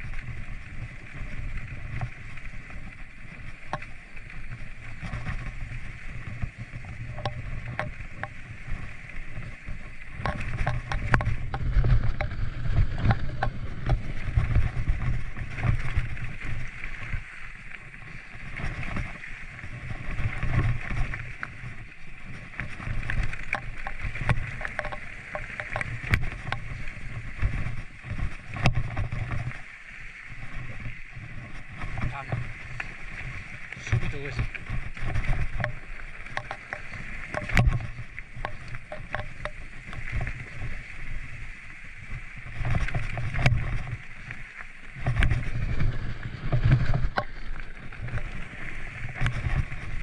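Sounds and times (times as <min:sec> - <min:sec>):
wind rumble on microphone: 0:00.0 - 0:50.0
bike clicks and rattles: 0:03.4 - 0:29.6, 0:30.5 - 0:41.1.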